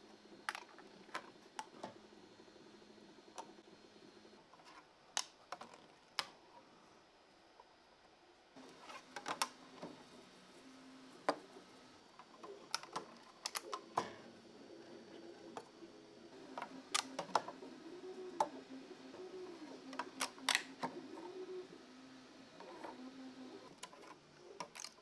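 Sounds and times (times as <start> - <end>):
plastic parts clicking on metal: 12.2 - 14.2, 16.5 - 17.6, 19.9 - 21.0, 23.7 - 25.0.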